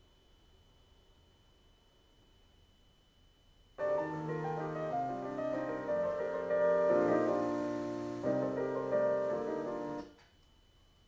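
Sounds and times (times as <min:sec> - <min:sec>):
piano chords from a radio: 0:03.8 - 0:10.2.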